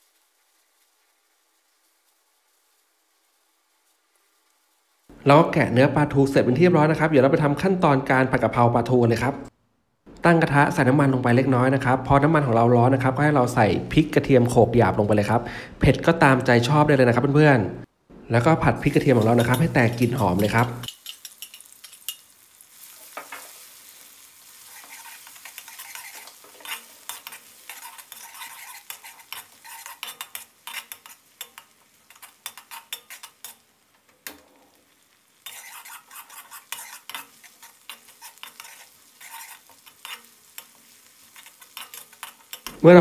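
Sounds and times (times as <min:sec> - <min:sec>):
food sizzling in hot oil: 0:00.0 - 0:07.1, 0:18.4 - 0:43.0
spatula scraping a wok: 0:18.8 - 0:42.8.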